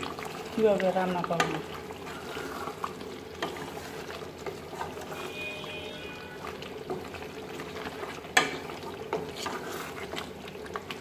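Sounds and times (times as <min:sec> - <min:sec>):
spatula stirring bubbling gravy: 0:00.0 - 0:11.0
spatula knocking pot: 0:08.3 - 0:09.3.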